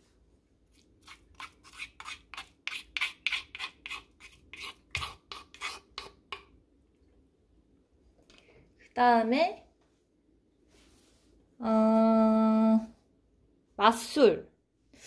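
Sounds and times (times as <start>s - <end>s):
scraping in a stone mortar: 1.0s - 6.4s.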